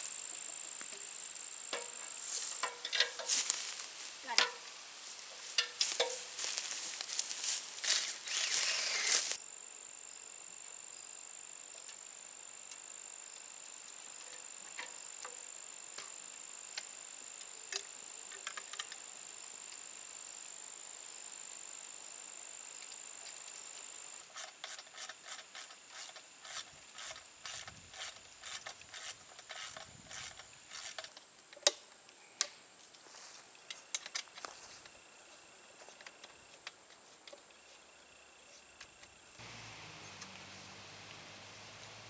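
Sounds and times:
high insect trill: 0:00.0 - 0:42.0
ratchet wrench clicking: 0:24.3 - 0:31.1.

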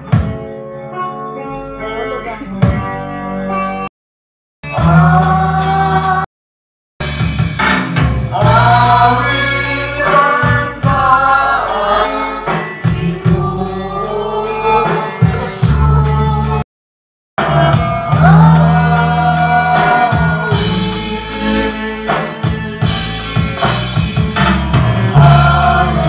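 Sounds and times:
instrumental accompaniment with beat: 0:00.0 - 0:01.0, 0:02.2 - 0:03.9, 0:07.0 - 0:16.6, 0:17.4 - 0:26.0
people singing a hymn: 0:04.7 - 0:06.3, 0:08.3 - 0:16.6, 0:17.4 - 0:26.0.

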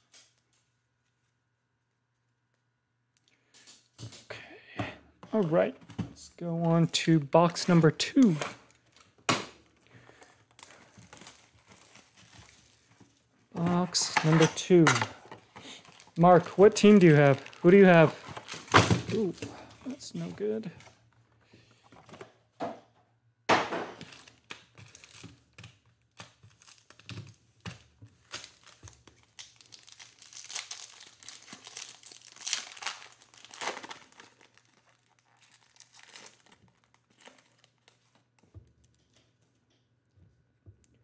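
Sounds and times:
foil card packs crinkling: 0:06.4 - 0:21.2, 0:24.0 - 0:39.0.

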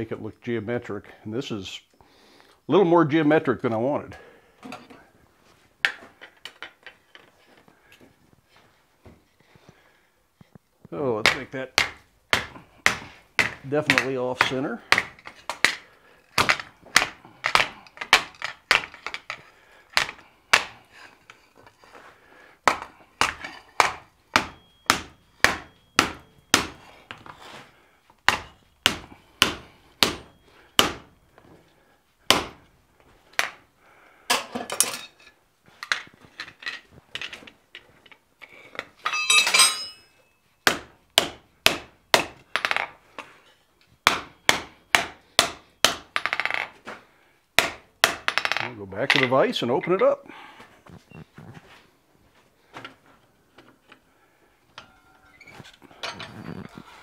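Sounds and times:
hammer striking steel on anvil: 0:22.7 - 0:26.8, 0:39.0 - 0:42.3
metallic clatter: 0:39.0 - 0:40.2.

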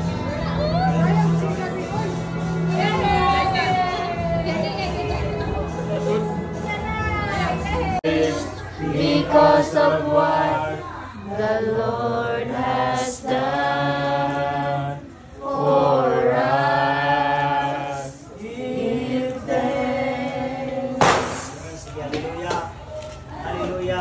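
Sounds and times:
group of voices singing: 0:07.5 - 0:21.8.

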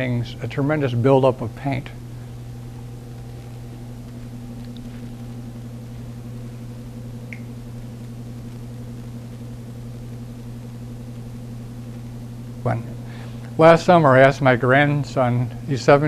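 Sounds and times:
steady low hum: 0:00.0 - 0:16.0
faint small clicks: 0:03.1 - 0:04.9, 0:07.3 - 0:07.5.

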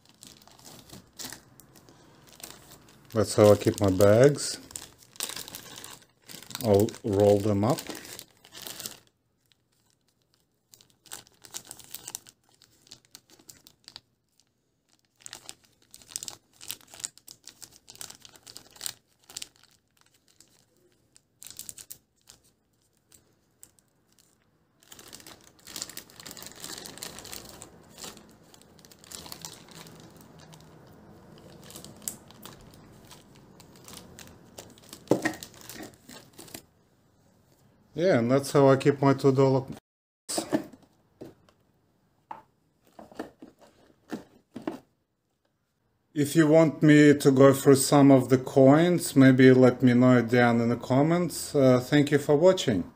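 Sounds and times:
plastic bags crinkling: 0:00.0 - 0:36.6.

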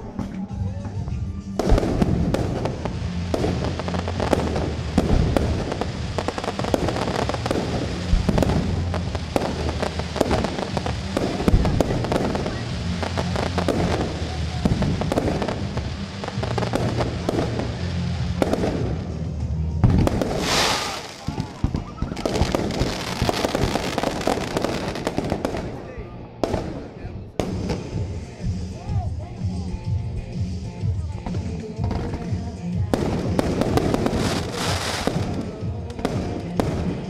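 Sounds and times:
fireworks bangs and crackling: 0:00.0 - 0:37.0
music playing: 0:00.0 - 0:37.0
loud hiss and crackle: 0:01.6 - 0:25.8, 0:33.0 - 0:37.0.

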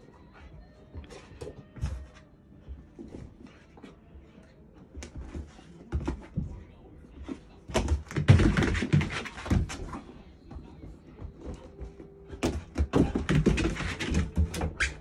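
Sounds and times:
knocks and thumps on wooden floor: 0:07.7 - 0:09.9, 0:12.4 - 0:14.9.

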